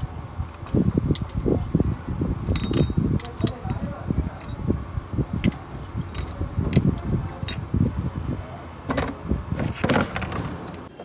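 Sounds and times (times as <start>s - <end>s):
metal parts clinking: 2.4s - 4.7s, 5.3s - 7.7s.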